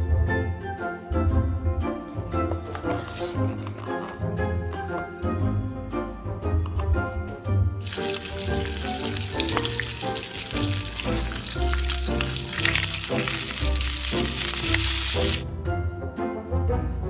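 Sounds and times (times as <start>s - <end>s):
background music: 0.0s - 17.0s
food sizzling in a frying pan: 7.8s - 15.4s.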